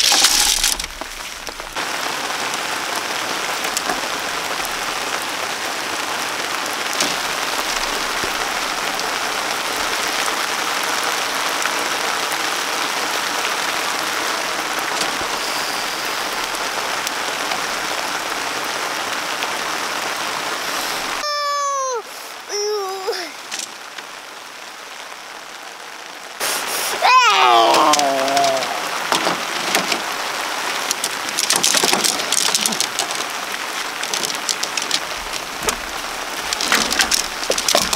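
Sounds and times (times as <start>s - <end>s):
rain falling: 0.0s - 37.9s
high-pitched voice calling out: 21.2s - 23.4s, 26.8s - 28.9s.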